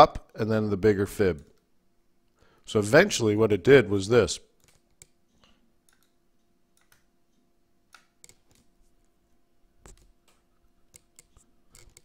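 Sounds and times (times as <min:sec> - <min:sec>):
faint steady hum: 0:00.0 - 0:12.0
computer mouse clicks: 0:04.6 - 0:08.7, 0:09.8 - 0:12.0.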